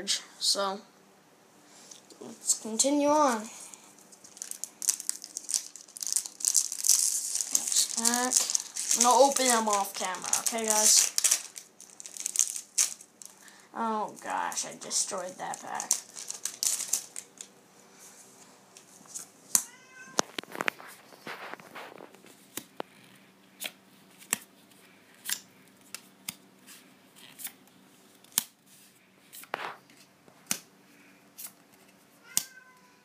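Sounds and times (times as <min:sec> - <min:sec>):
cat meowing: 0:19.6 - 0:20.3, 0:32.2 - 0:33.0
trading cards flipping clicks: 0:25.2 - 0:26.4, 0:28.2 - 0:28.6.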